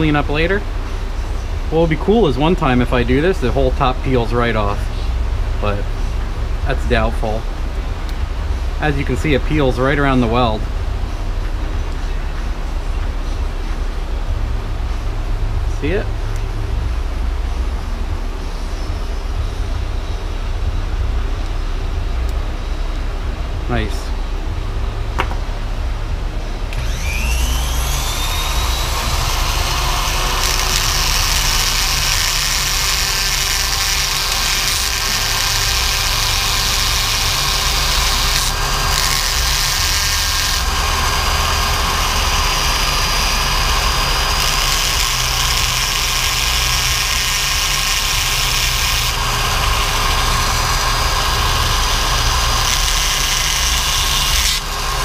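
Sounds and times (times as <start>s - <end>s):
bit grinding metal: 26.7s - 55.0s
rotary tool whining: 26.7s - 55.0s.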